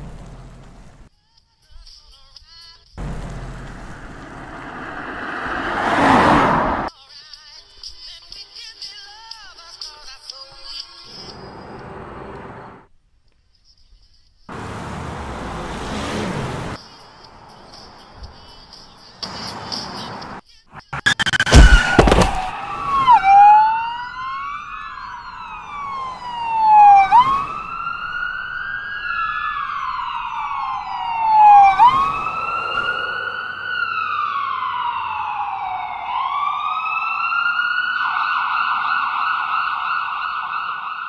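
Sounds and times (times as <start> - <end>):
emergency vehicle siren wailing: 3.0 - 6.9, 20.8 - 41.0
loud sharp impact: 20.8 - 22.6.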